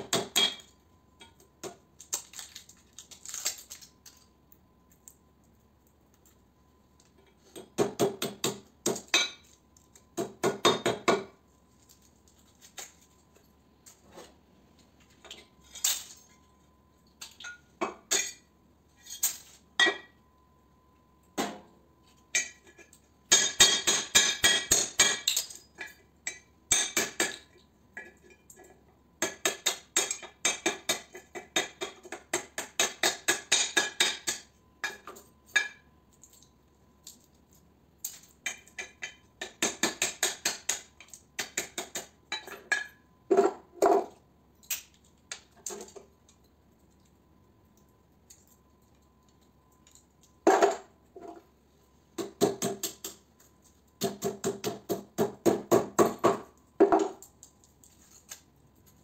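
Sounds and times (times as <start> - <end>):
hammer striking metal: 0.0 - 0.7, 23.3 - 25.5, 32.4 - 35.8.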